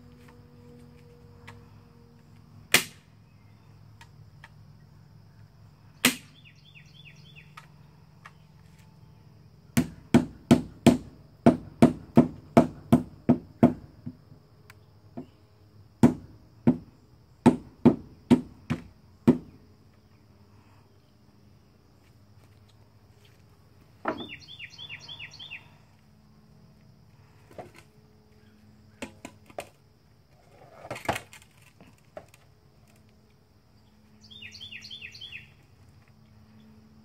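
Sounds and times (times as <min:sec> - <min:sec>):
staple gun and hammer strikes on wood: 0:09.8 - 0:14.2, 0:16.0 - 0:19.6.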